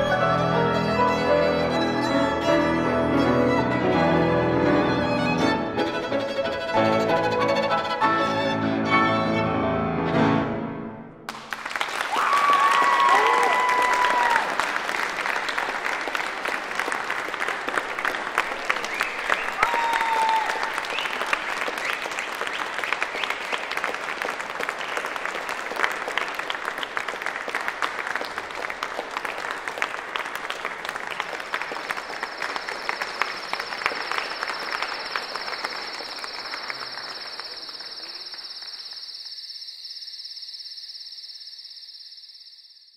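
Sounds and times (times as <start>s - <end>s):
audience applauding: 11.3s - 39.1s
night insects trilling: 32.2s - 42.9s.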